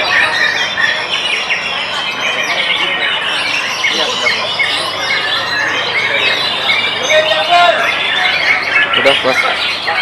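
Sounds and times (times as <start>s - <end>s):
songbirds singing in chorus: 0.0s - 10.0s.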